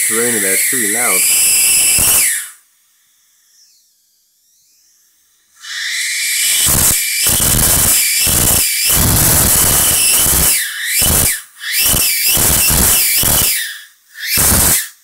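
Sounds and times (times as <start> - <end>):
high-voltage arc tearing rip: 0.0 - 2.5, 5.7 - 13.6, 14.2 - 15.0.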